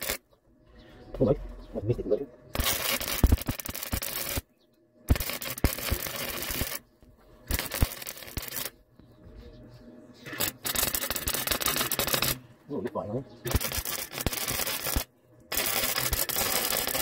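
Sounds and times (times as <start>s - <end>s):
welder arc crackling: 0.0s - 0.2s, 2.5s - 4.5s, 5.1s - 8.8s, 10.2s - 17.0s.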